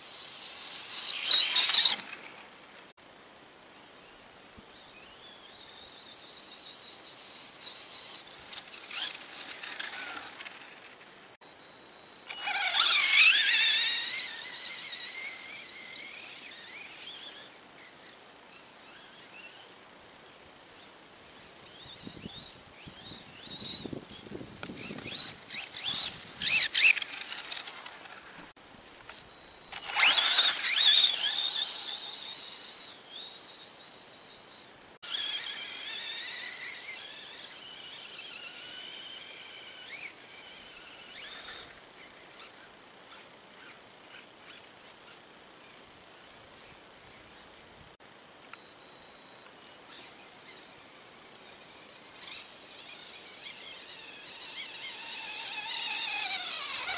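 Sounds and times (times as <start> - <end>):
electric motor whining: 0.0 - 2.6, 4.7 - 10.9, 12.2 - 17.6, 21.7 - 28.5, 29.1 - 42.6, 49.9 - 56.9.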